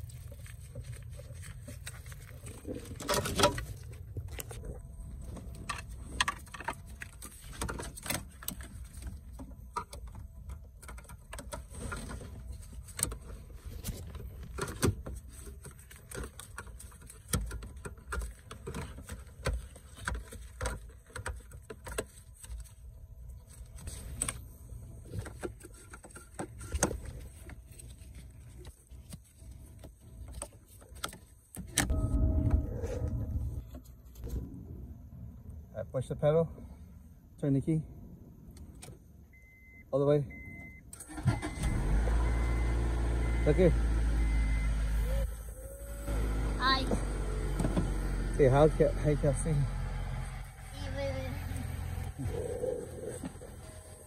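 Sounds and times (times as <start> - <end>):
steady low rumble: 0.0 - 6.2, 31.9 - 38.8
clicks and rattles of wiring: 0.0 - 22.8.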